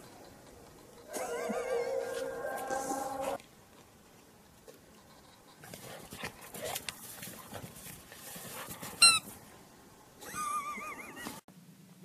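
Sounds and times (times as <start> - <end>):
faint shuffling: 5.6 - 9.7
dog squeaking: 9.0 - 9.3.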